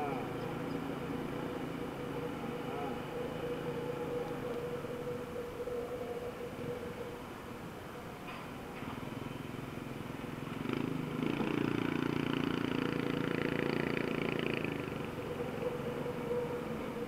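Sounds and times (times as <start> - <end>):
road and wind noise: 0.0 - 17.0
motorbike engine: 8.8 - 17.0.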